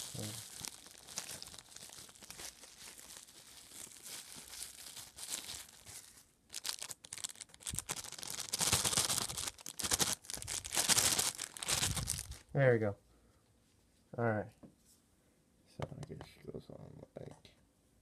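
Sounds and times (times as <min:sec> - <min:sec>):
plastic wrapping crinkling: 0:00.0 - 0:12.5.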